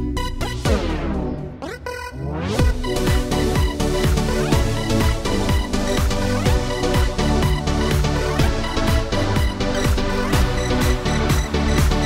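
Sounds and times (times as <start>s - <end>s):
electronic dance music: 0.0s - 12.0s
heavy kick-drum beat: 2.6s - 12.0s.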